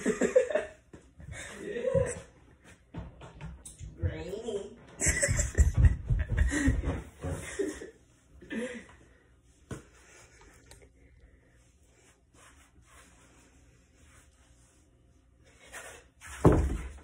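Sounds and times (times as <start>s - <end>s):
boy laughing: 5.0s - 8.6s.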